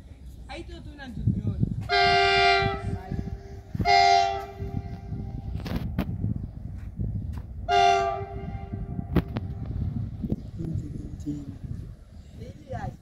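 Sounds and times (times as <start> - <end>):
train air horn blasts: 1.9 - 5.4, 7.7 - 9.1.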